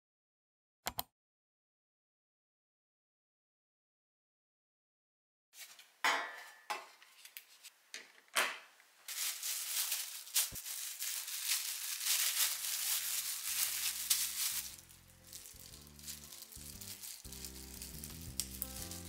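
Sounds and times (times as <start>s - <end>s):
plastic gloves crinkling: 9.0s - 19.0s.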